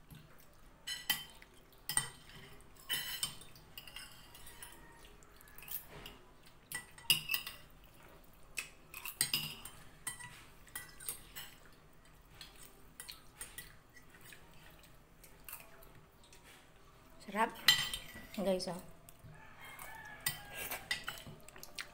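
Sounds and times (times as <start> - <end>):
cutlery clinking on ceramic plates: 0.8 - 11.7, 17.5 - 18.4, 19.3 - 21.5.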